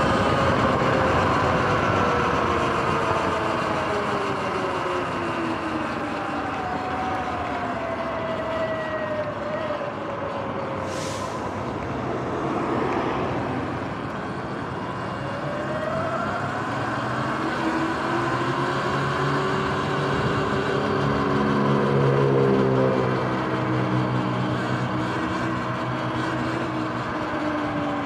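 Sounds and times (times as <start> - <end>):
wind noise: 19.0 - 21.3.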